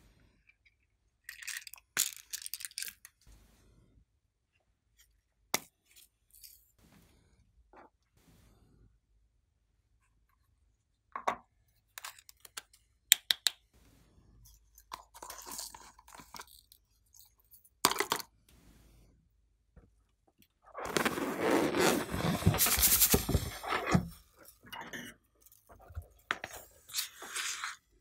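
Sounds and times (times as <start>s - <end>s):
loud crunching scrape: 20.8s - 24.1s.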